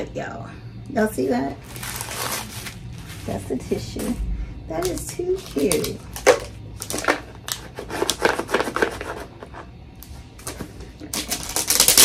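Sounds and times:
plastic wrapping crinkling: 0:01.6 - 0:04.2, 0:04.8 - 0:09.0, 0:10.4 - 0:12.0.

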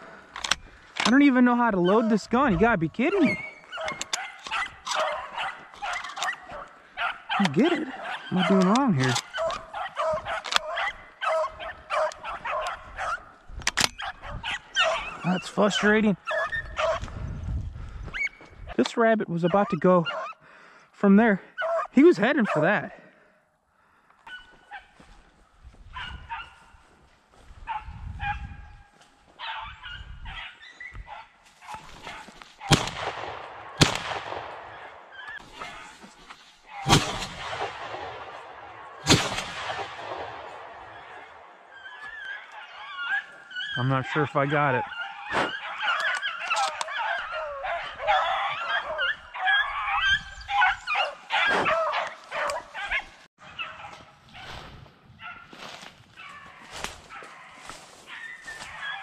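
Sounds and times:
dogs baying and yelping: 0:01.7 - 0:17.2, 0:18.0 - 0:18.8, 0:19.4 - 0:20.5, 0:21.5 - 0:22.8, 0:24.2 - 0:25.0, 0:25.8 - 0:26.8, 0:27.6 - 0:32.8, 0:34.6 - 0:37.8, 0:40.4 - 0:54.6, 0:55.2 - 0:59.0
shotgun blasts with echo: 0:32.6 - 0:35.2, 0:36.8 - 0:41.5.

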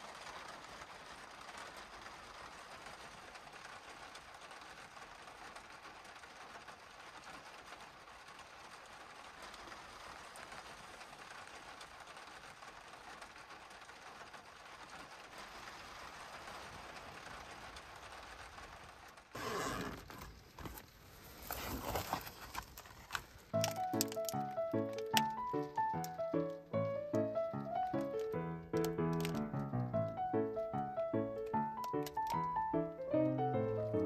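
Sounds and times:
cooler bag being opened: 0:19.4 - 0:20.8, 0:21.4 - 0:23.2
plastic packet crinkling: 0:19.4 - 0:29.8
music: 0:23.6 - 0:34.0.

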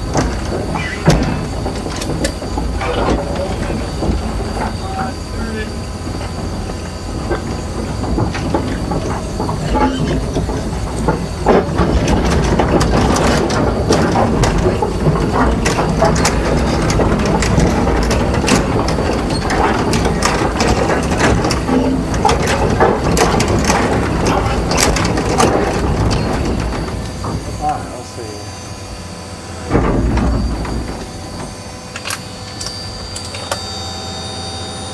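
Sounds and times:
track links clanking: 0:00.0 - 0:33.9
diesel engine running: 0:00.0 - 0:34.9.

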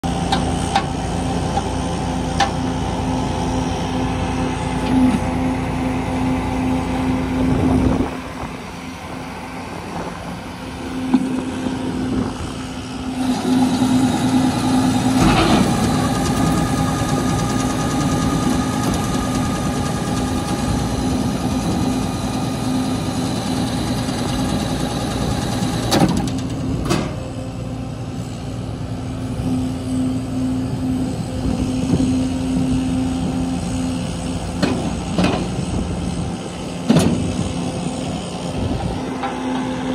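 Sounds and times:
truck engine and hydraulic drone: 0:00.0 - 0:39.9.

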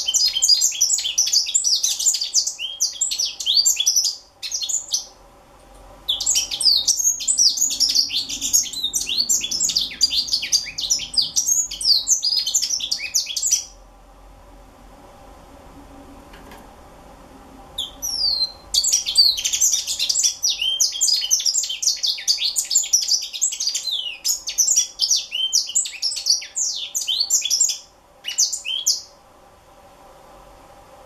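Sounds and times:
bird singing high twittering song: 0:00.0 - 0:05.2, 0:06.1 - 0:13.8, 0:17.8 - 0:29.1.

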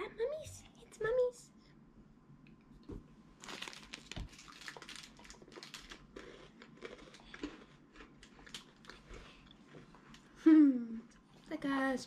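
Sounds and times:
person chewing crunchy snack: 0:03.4 - 0:10.3.

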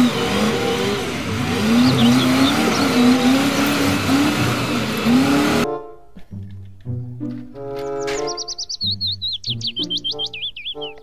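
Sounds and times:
bird chirping: 0:00.0 - 0:03.8, 0:07.8 - 0:11.0
diesel engine running under load: 0:00.0 - 0:05.6
music: 0:03.4 - 0:11.0.

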